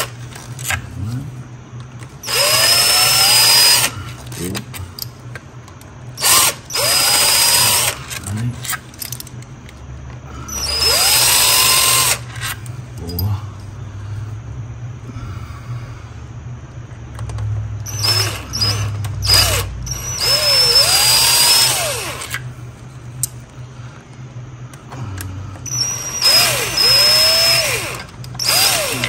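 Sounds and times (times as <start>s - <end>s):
cordless power driver spinning: 2.0s - 4.8s, 6.2s - 9.8s, 10.5s - 12.7s, 17.2s - 22.5s, 24.8s - 29.0s.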